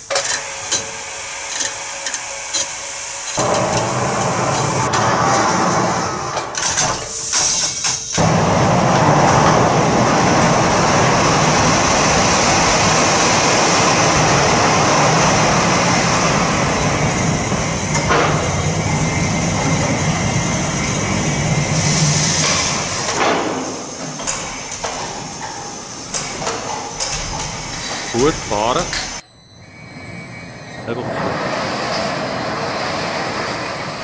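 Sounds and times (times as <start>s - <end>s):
electric crane drive humming: 8.2s - 34.0s.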